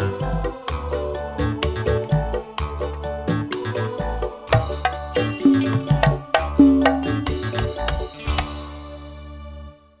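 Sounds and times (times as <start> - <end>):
live band music: 4.5 - 8.7
drums and band hit: 4.5 - 8.8.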